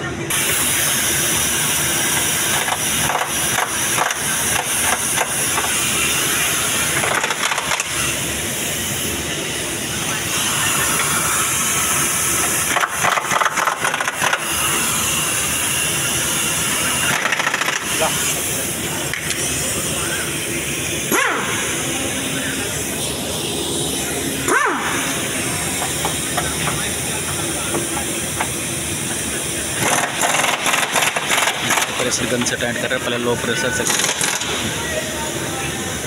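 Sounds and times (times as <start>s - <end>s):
impact wrench rattling bursts: 6.9s - 8.2s, 12.4s - 15.4s, 17.0s - 18.5s, 29.8s - 32.5s, 33.8s - 34.6s.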